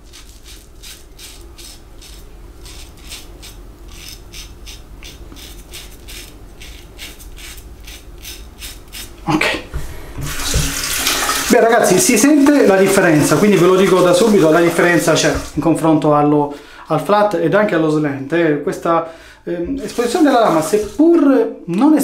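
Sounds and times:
razor scraping stubble: 0.0 - 9.4, 19.8 - 21.1.

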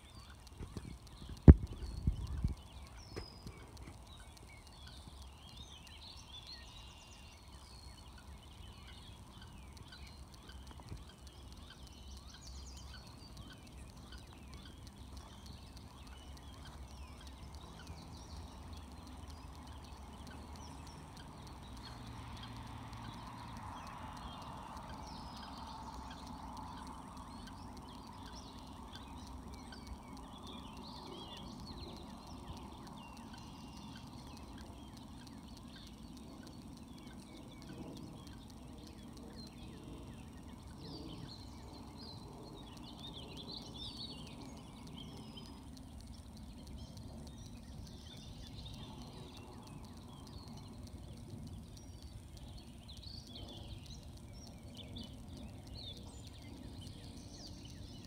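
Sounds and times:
ducklings peeping: 0.0 - 58.0
low background rumble: 0.0 - 58.0.

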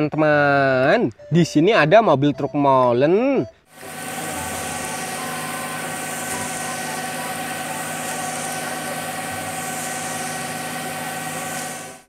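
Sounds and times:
diesel truck engine running: 3.7 - 12.0
mixer drum turning: 3.7 - 12.0
concrete pouring down chute: 3.8 - 12.0.

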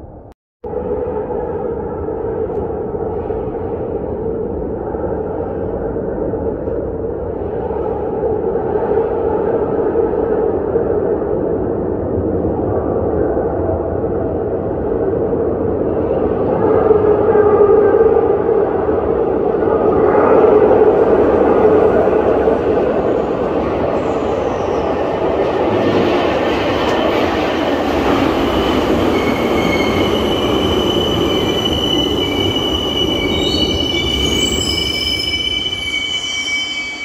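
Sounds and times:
subway train rumbling: 0.0 - 37.0
train brakes squealing: 28.4 - 37.0.

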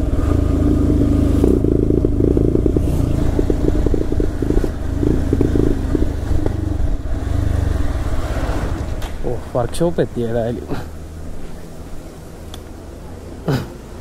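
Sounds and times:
motorcycle engine running: 0.0 - 9.6.

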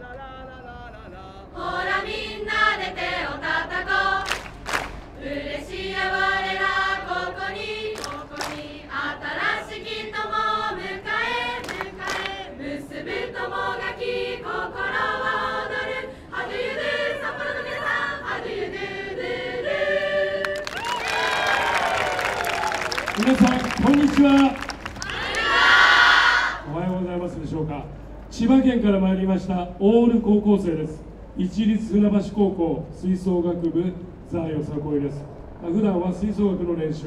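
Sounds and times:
group of voices singing: 1.4 - 4.6, 5.2 - 20.8.

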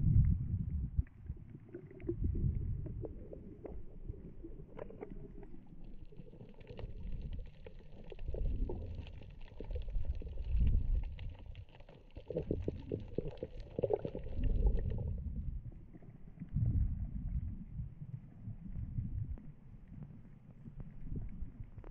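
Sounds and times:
underwater rumble of moving water: 0.0 - 21.9
faint crackling clicks: 3.0 - 15.0.

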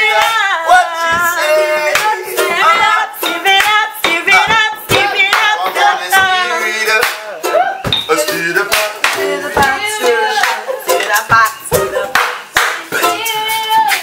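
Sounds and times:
group singing: 0.0 - 14.0
strummed ukulele: 0.0 - 14.0
claps and knocks: 1.1 - 2.1, 3.2 - 5.6, 7.0 - 7.2, 8.7 - 9.8, 11.3 - 13.0.

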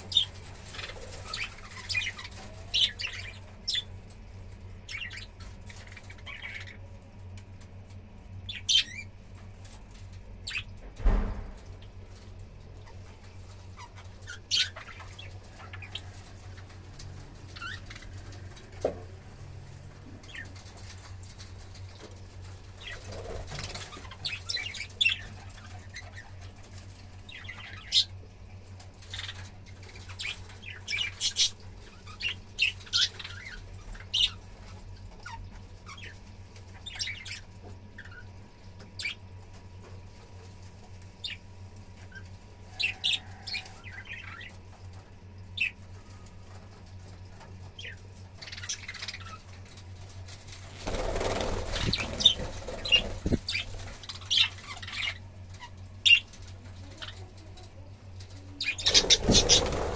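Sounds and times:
budgerigars chirping: 30.0 - 34.4, 47.8 - 49.5, 51.8 - 56.3, 58.6 - 59.9
bird wingbeats: 50.3 - 54.4, 58.7 - 59.9.

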